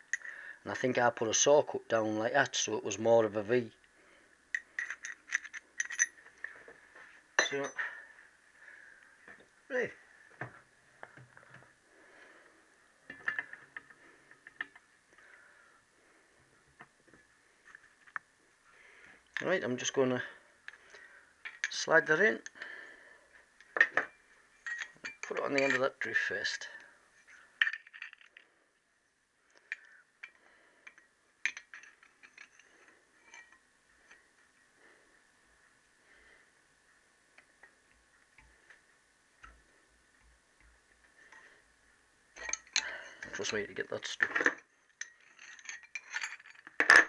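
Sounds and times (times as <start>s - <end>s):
metal tools clicking and tapping: 0.0s - 0.3s, 4.5s - 6.2s, 7.4s - 7.9s, 13.1s - 14.8s, 21.4s - 21.8s, 23.6s - 26.0s, 29.6s - 34.2s, 42.4s - 47.0s.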